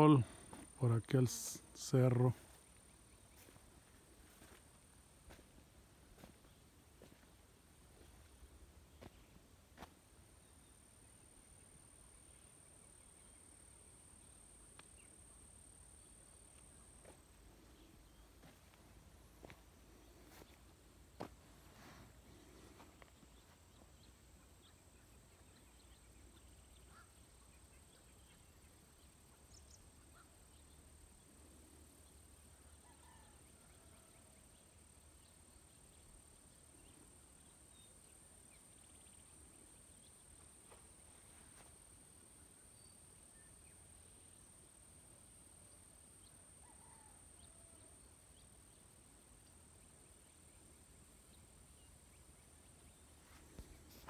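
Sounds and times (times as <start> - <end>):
faint bird chirps: 19.4 - 41.6, 45.6 - 54.0.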